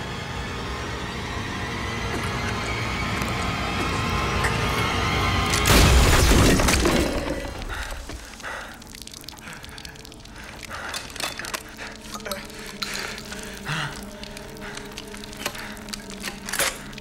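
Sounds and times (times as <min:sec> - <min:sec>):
low music drone: 0:00.0 - 0:17.0
breathy hissing noises: 0:07.5 - 0:17.0.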